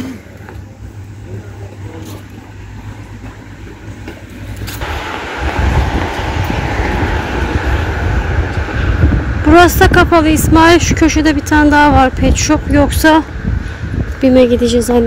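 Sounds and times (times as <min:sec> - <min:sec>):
low traffic rumble: 0:00.0 - 0:15.0
vehicle passing close: 0:03.9 - 0:12.6.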